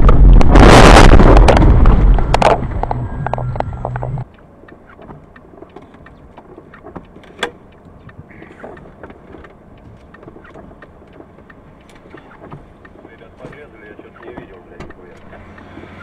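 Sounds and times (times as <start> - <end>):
road noise inside car: 0.0 - 16.0
light ticks: 3.9 - 16.0.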